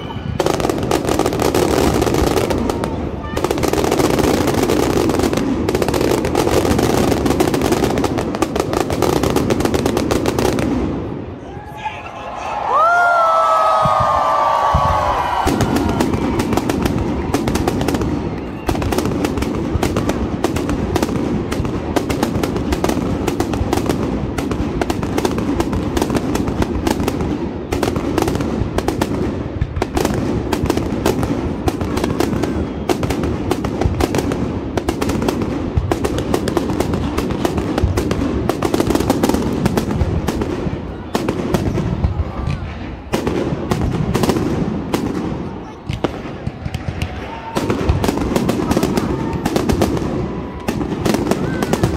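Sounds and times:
whistling rocket: 0.0s - 5.4s, 12.7s - 20.2s
fireworks bursting and crackling: 0.0s - 51.9s.

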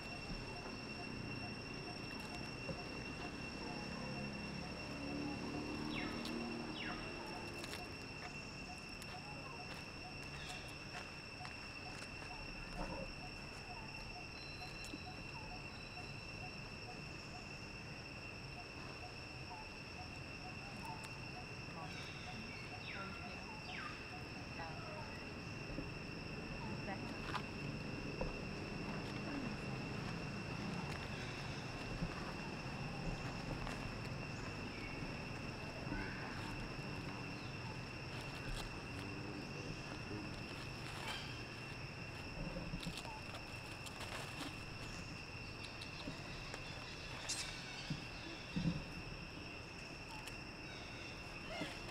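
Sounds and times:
insect chorus droning: 0.0s - 51.9s
dry leaves crackling: 39.8s - 47.8s.

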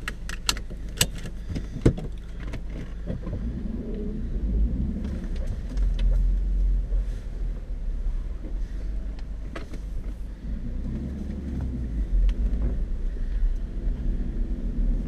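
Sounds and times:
sharp clicks and knocks: 0.0s - 3.5s
vehicle engine idling: 0.0s - 15.0s.

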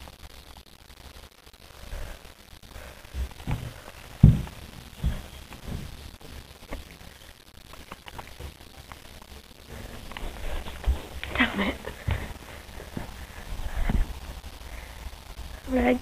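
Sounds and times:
dull thumps and knocks: 3.2s - 6.0s.

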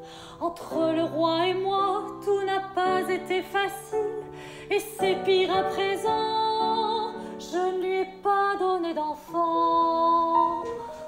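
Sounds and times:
woman singing operatic melody: 0.2s - 11.0s.

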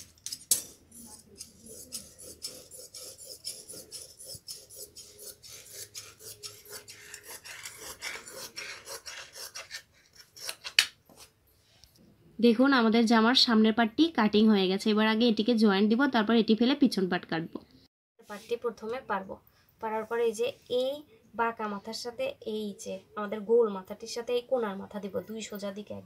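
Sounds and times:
scissors snipping cloth: 0.0s - 10.9s.

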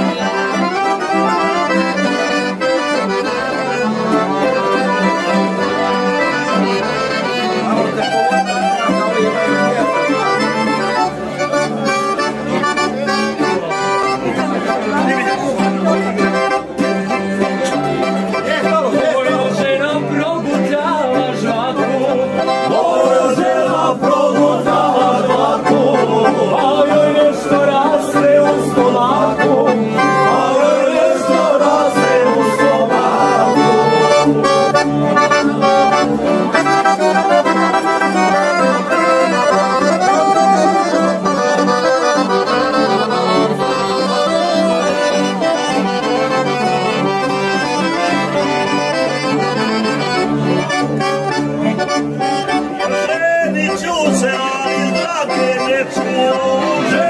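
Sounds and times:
accordion: 0.0s - 57.0s
acoustic guitar: 0.0s - 57.0s
tamburica: 0.0s - 57.0s
men singing: 18.9s - 36.9s, 53.0s - 57.0s.

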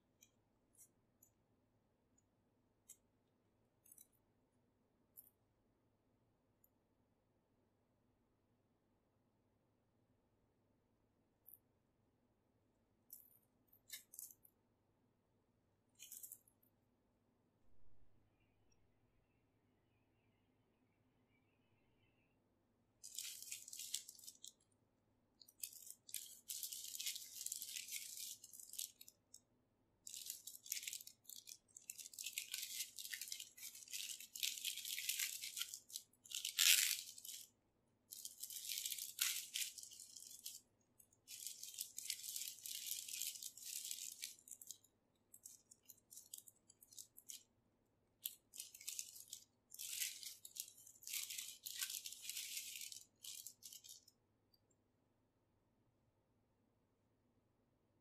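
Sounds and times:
plastic bag crinkling: 23.0s - 24.7s, 25.4s - 29.4s, 30.0s - 47.5s, 48.2s - 54.2s.

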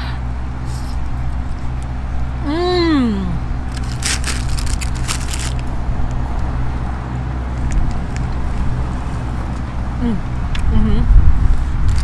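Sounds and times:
low rumble of traffic: 0.0s - 12.0s
paper napkin crinkling: 3.7s - 5.7s.

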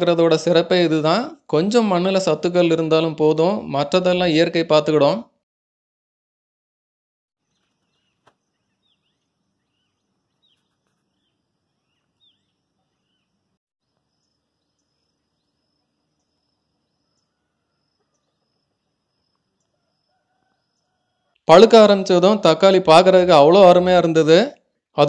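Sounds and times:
small birds chirping: 7.4s - 21.5s
insect drone: 11.2s - 21.1s.

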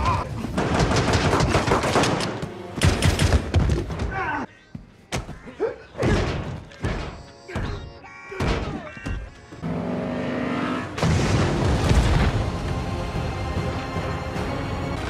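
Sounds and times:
orchestral score with held chords: 12.4s - 15.0s.

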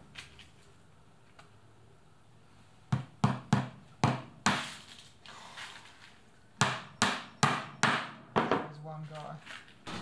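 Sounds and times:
hammer striking nails into wood: 2.9s - 4.8s, 6.6s - 8.7s.

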